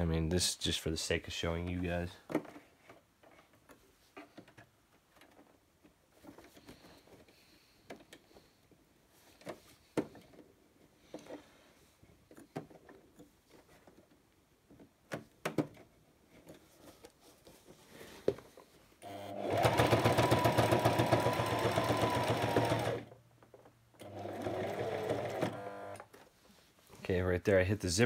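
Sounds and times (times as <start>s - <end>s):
sewing machine stitching: 19.0s - 23.1s, 24.0s - 26.0s.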